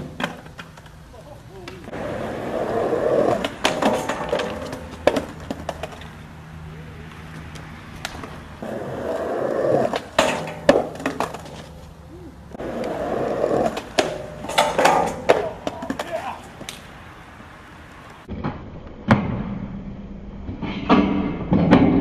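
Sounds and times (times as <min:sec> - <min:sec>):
skateboard clacking and slamming: 0:00.0 - 0:01.0, 0:01.6 - 0:06.2, 0:08.0 - 0:11.8, 0:12.6 - 0:16.9
skateboard wheels rolling on concrete: 0:00.0 - 0:19.2.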